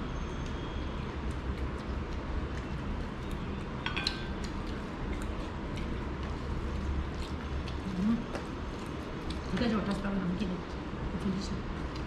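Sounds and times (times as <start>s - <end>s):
low background hum: 0.0s - 12.0s
tableware clinking: 3.8s - 4.3s.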